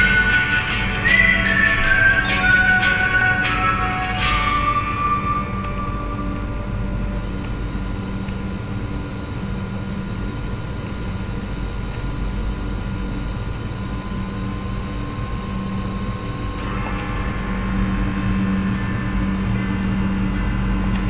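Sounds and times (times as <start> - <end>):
faint held tones: 0.0 - 9.8
low droning hum: 0.0 - 21.0.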